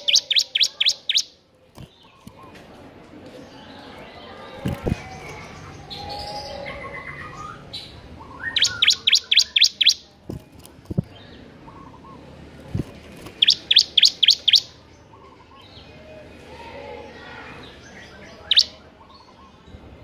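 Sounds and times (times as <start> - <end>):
bird singing sharp notes: 0.0 - 1.3, 8.3 - 10.1, 13.4 - 14.8, 18.4 - 18.8.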